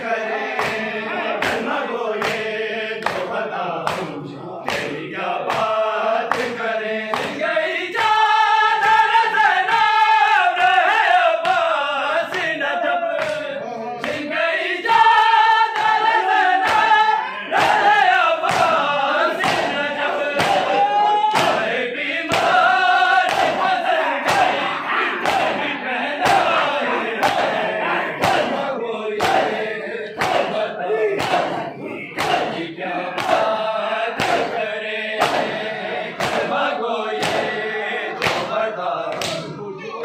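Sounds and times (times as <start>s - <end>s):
men chanting together: 0.0s - 40.0s
hands slapping chests: 0.5s - 7.4s, 13.1s - 14.3s, 15.7s - 25.6s, 26.2s - 27.6s, 28.2s - 29.6s, 30.2s - 34.6s, 35.2s - 35.6s, 36.2s - 37.6s, 38.2s - 39.5s.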